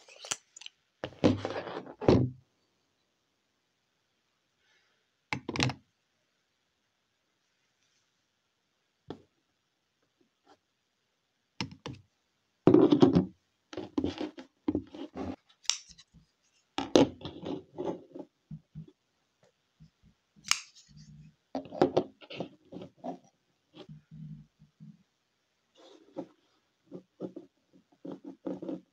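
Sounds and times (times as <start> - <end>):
pocket knives clicking and scraping: 15.6 - 16.1, 20.4 - 21.1.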